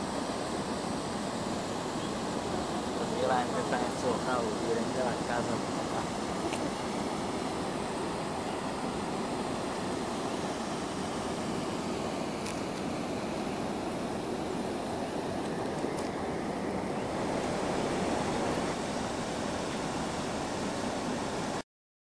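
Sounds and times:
river water rushing: 0:00.0 - 0:21.6.

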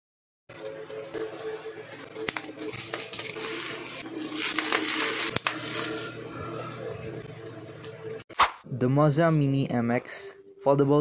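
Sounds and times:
bubble wrap crinkling: 0:02.2 - 0:06.1.

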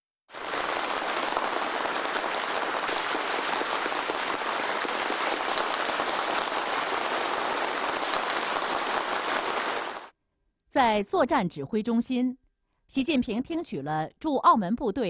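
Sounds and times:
crowd applauding: 0:00.3 - 0:10.1.

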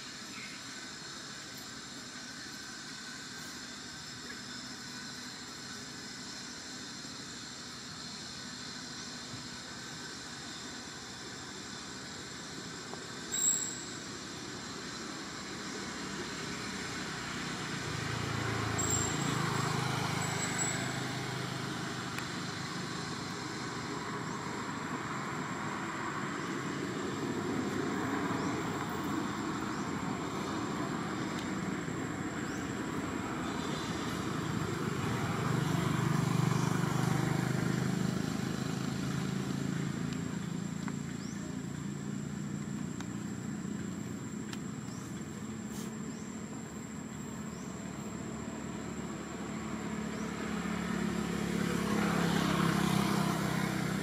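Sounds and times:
vehicle engine hum: 0:00.0 - 0:54.0.

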